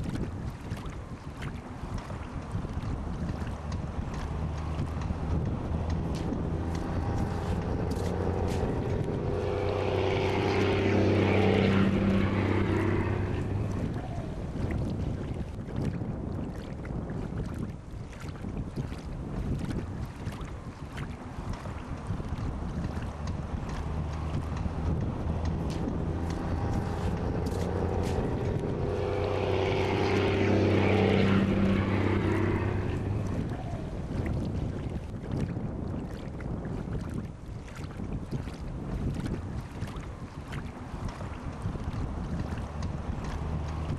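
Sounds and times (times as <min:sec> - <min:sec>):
engine passing by: 0:02.8 - 0:15.6, 0:21.6 - 0:35.1, 0:40.8 - 0:43.9
steady low hum: 0:03.1 - 0:15.4, 0:22.9 - 0:34.9.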